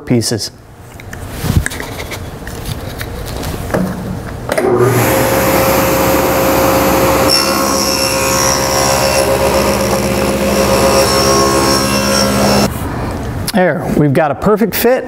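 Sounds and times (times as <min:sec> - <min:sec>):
saw blade cutting wood: 0:04.6 - 0:12.7
table saw motor running: 0:04.6 - 0:12.7.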